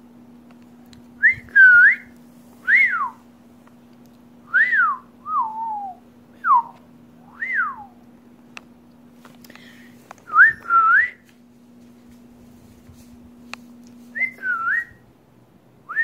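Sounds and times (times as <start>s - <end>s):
whistled notes: 14.1s - 15.0s.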